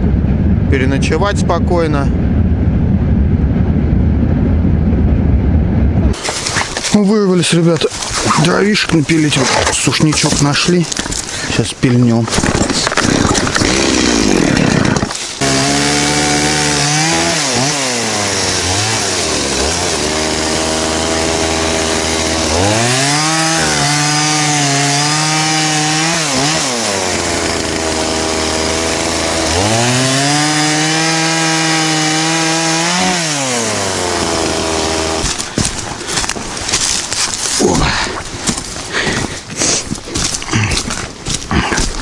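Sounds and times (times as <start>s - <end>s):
chainsaw cutting a log: 12.3s - 37.6s.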